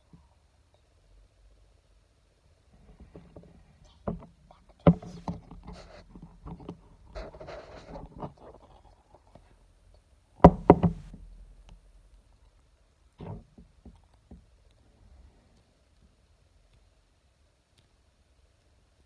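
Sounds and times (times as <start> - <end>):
plastic tub knocking on table: 10.4 - 11.1.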